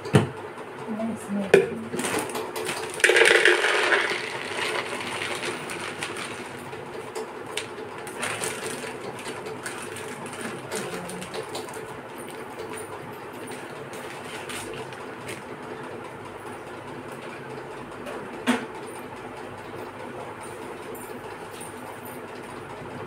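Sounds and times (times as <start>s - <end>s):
kitchen items clattering: 1.5s - 15.0s
containers clicking on counter: 1.6s - 6.4s.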